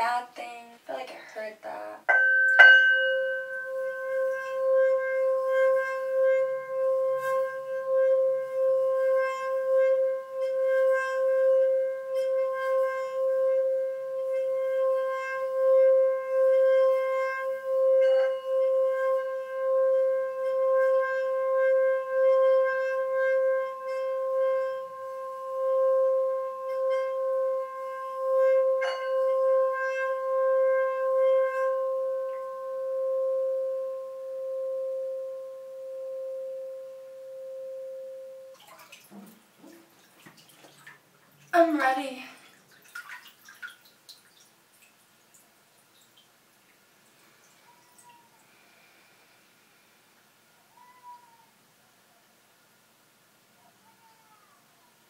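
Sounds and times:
mallet knocking on bowl: 2.1s - 3.8s
singing bowl ringing tone: 2.1s - 38.6s.

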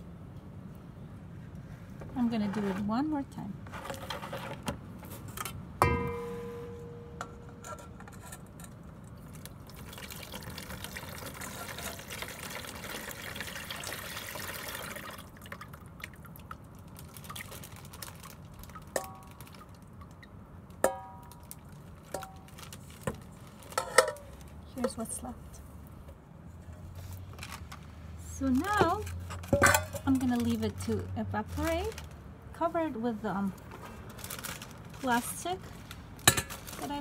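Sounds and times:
slurry trickling through strainer: 9.2s - 15.8s.

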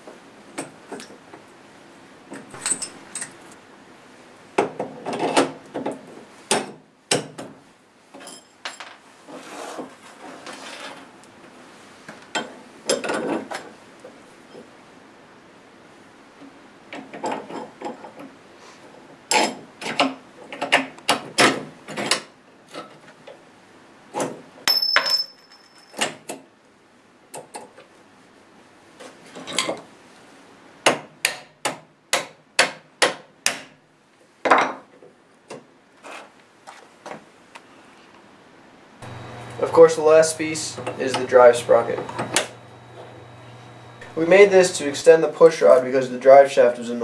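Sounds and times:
metal parts clinking and knocking: 2.6s - 3.4s, 24.7s - 26.1s.

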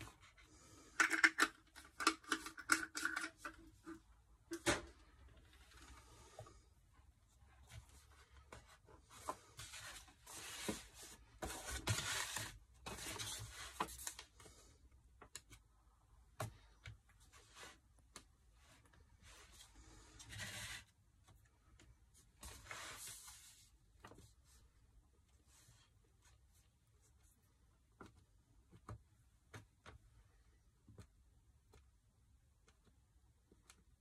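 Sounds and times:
paper rustling and sliding: 7.7s - 14.2s.

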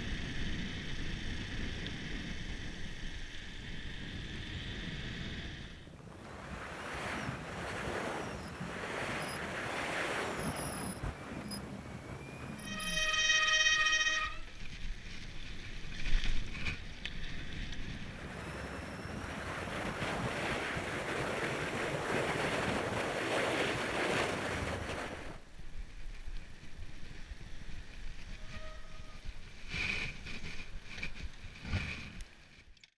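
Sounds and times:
wind on microphone: 0.0s - 32.3s
bike tyres on asphalt: 0.0s - 32.9s
disc brake squeal: 8.2s - 9.5s, 10.3s - 14.4s.

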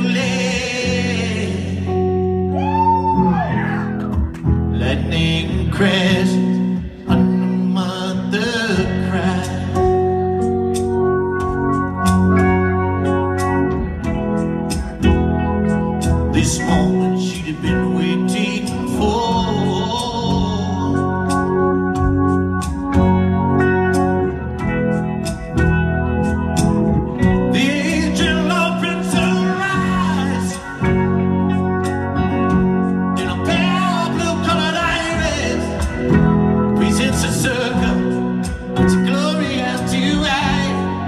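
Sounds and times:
man singing: 0.0s - 4.0s, 4.6s - 10.4s, 16.2s - 21.6s, 27.3s - 31.4s, 33.2s - 41.0s.

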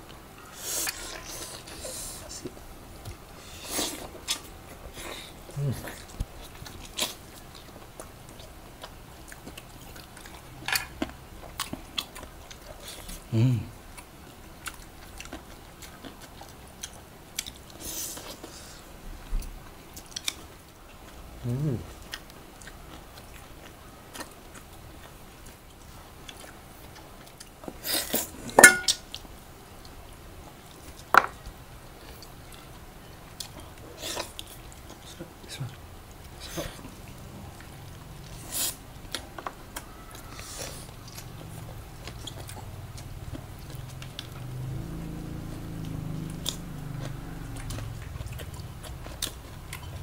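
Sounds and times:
chewing and mouth sounds: 0.0s - 50.0s
metal dish clinking: 28.6s - 29.0s.

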